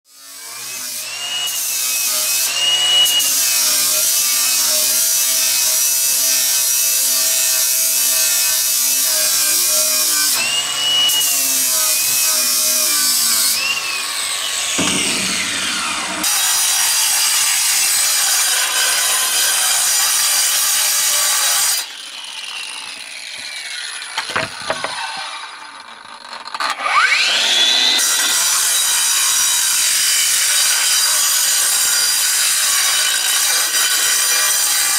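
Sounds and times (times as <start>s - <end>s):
angle grinder cutting concrete: 0.1s - 34.9s
angle grinder grinding steel: 0.2s - 34.9s.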